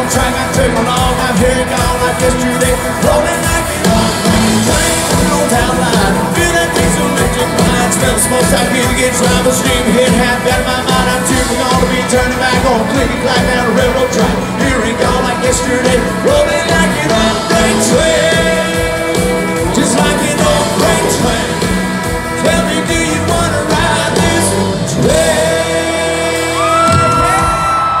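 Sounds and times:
live country band playing: 0.0 - 28.0.

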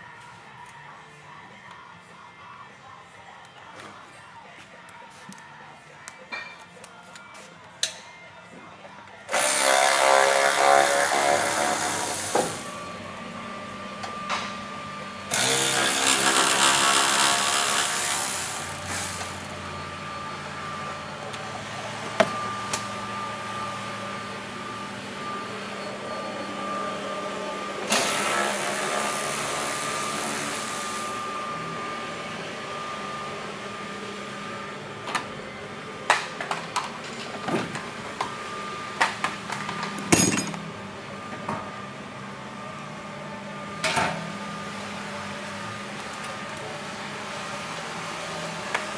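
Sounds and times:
power ratchet whirring: 9.3 - 13.1, 15.3 - 19.6.

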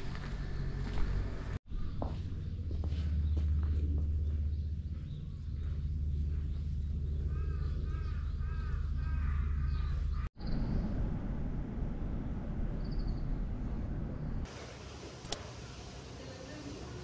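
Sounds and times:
low rumble: 0.0 - 14.5
bird calling: 4.2 - 10.6.

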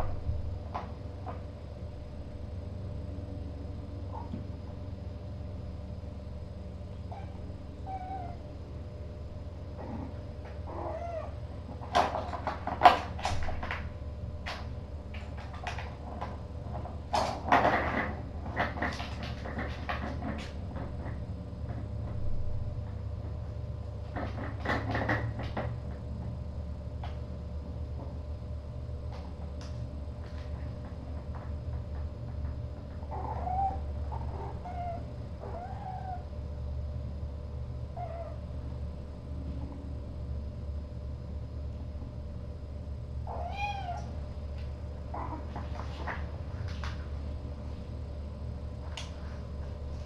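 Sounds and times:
steady low hum: 0.0 - 50.0
kitten meowing: 7.1 - 8.4, 43.3 - 44.1
plastic cat toy knocking and rattling: 11.8 - 22.2.

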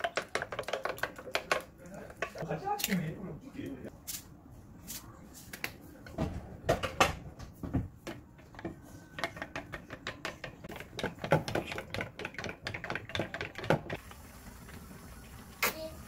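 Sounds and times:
spoon beating eggs in metal bowl: 0.0 - 2.4, 8.6 - 14.0.

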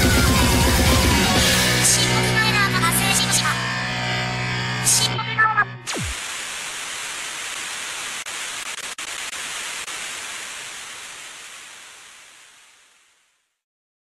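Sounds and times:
static hiss: 5.9 - 13.6.

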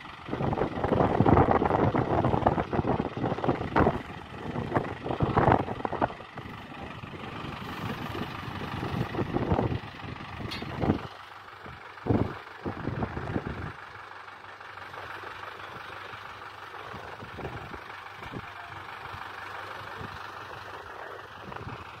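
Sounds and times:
loud low rumbles: 0.0 - 13.9, 15.2 - 22.0
tractor engine running: 0.0 - 22.0.

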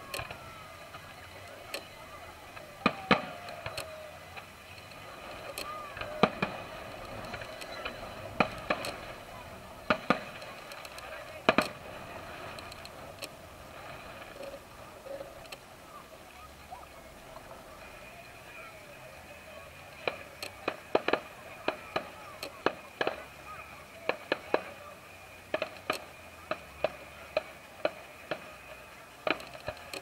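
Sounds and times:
fireworks bursting: 0.0 - 30.0
murmur of voices: 0.0 - 30.0.

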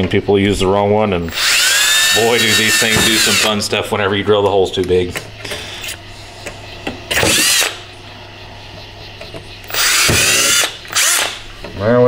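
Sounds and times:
power drill boring metal: 1.3 - 3.6, 7.1 - 7.8, 9.7 - 11.4.

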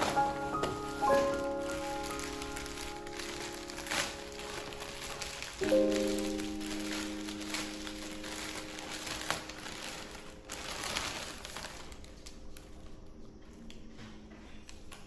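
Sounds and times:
held music chord: 0.0 - 11.2
plastic wrapping crinkling: 0.0 - 13.9.

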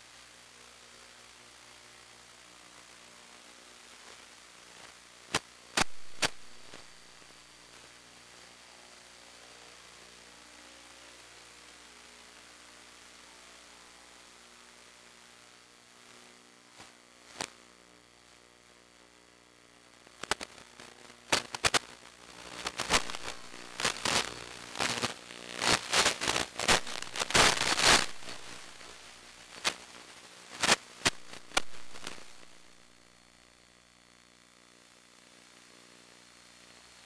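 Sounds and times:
crackling radio static: 0.0 - 37.0.

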